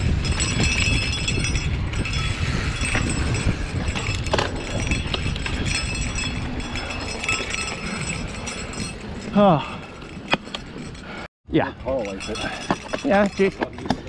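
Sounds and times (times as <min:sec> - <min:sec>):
bike tyres on dirt: 0:00.0 - 0:11.2
wind rumble on microphone: 0:00.0 - 0:11.2
bike chain and frame rattling: 0:00.0 - 0:14.0.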